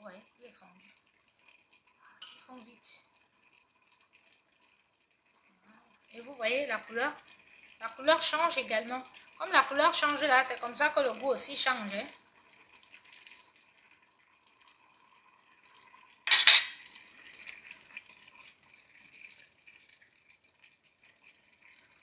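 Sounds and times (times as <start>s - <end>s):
metal ladle clinking: 16.3s - 16.8s.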